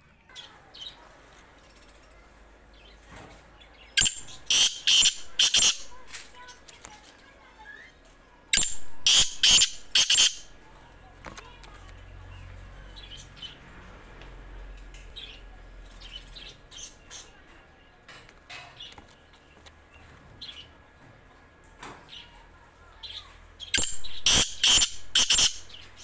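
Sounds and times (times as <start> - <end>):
faint high bird chirps: 0.2 - 10.7, 22.0 - 26.0
harsh loud bird call: 4.0 - 6.0, 8.6 - 10.5, 23.6 - 25.9.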